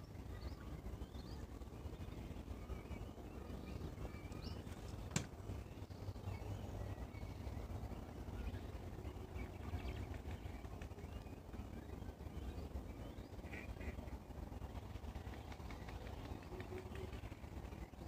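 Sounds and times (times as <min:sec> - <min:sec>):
steady low rumble: 0:00.0 - 0:18.0
faint bird calls: 0:08.4 - 0:14.3, 0:15.2 - 0:17.9.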